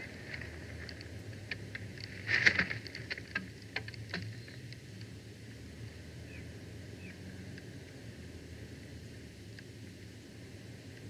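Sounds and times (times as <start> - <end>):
dry sticks crackling and snapping: 0.0 - 5.1.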